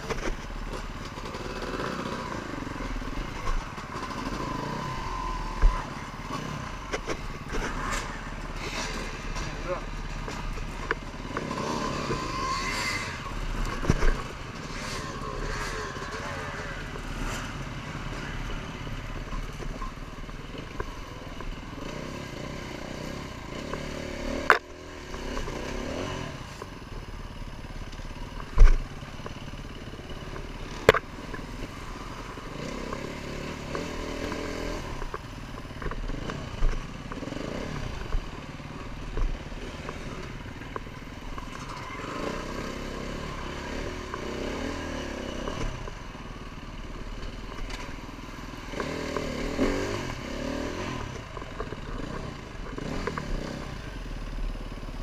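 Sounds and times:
dirt bike engine revving: 0.0s - 20.1s, 29.6s - 35.2s, 35.8s - 54.1s.

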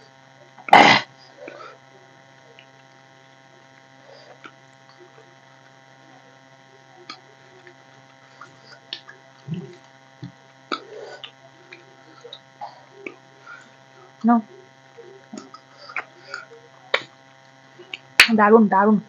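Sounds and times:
steady electrical hum: 0.0s - 19.0s.

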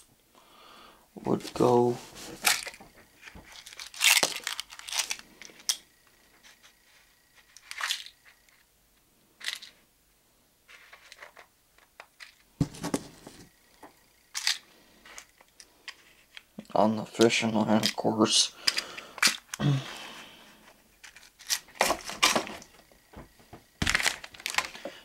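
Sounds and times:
fishing tackle rustling and crinkling: 1.3s - 8.6s, 9.4s - 9.8s, 12.2s - 13.6s, 14.3s - 19.6s, 20.4s - 25.0s.

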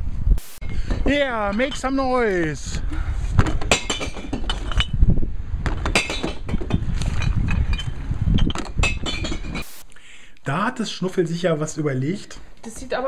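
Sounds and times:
glass bottles clinking: 3.4s - 5.0s, 5.7s - 9.7s.

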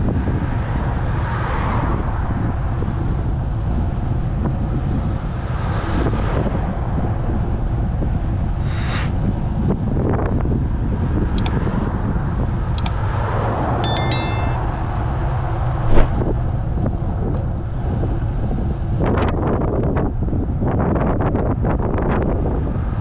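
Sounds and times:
brief high tones: 13.8s - 14.6s.

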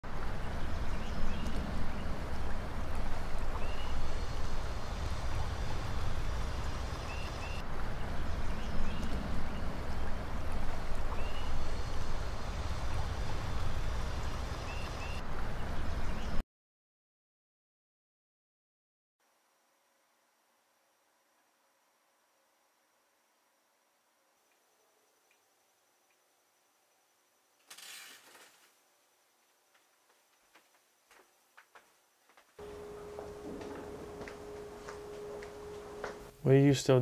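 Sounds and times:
low steady rumble: 0.0s - 16.4s, 32.6s - 36.9s.

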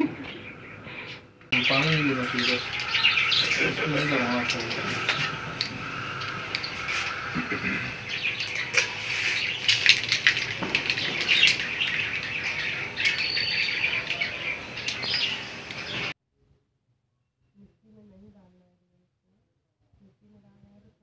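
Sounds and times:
plastic decorations rustling and clicking: 1.7s - 16.1s.

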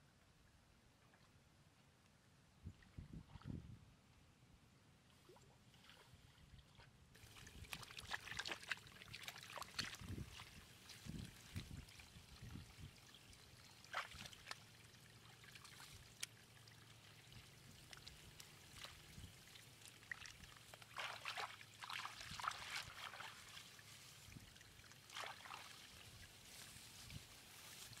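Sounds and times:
faint water trickling: 5.0s - 28.0s
hand splashing in mud: 20.8s - 23.6s.

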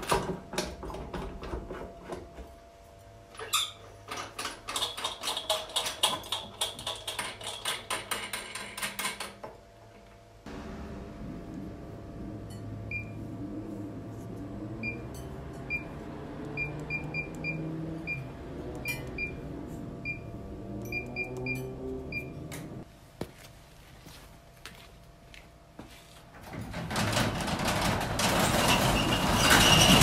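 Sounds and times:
keypad beeping: 14.8s - 22.6s.

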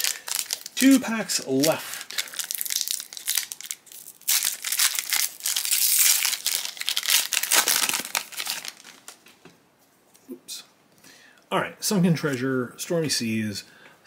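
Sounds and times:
foil wrapper crinkling and tearing: 0.0s - 9.2s.

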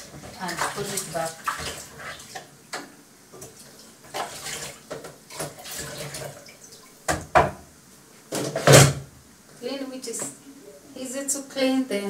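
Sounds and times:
water splashing in sink: 0.0s - 7.5s.

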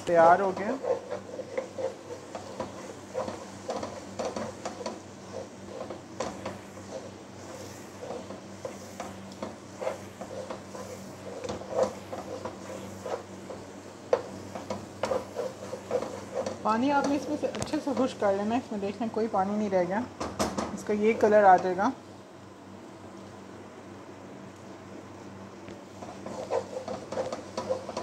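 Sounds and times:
wooden spatula scraping pan: 0.0s - 19.1s, 20.8s - 21.7s, 26.0s - 28.0s.

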